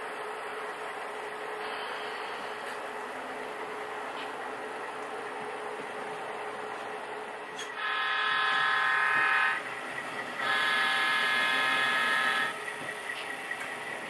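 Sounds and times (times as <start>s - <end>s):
simulated diesel engine hum: 0.0s - 14.0s
model locomotive horn blasts: 7.7s - 9.6s, 10.4s - 12.6s.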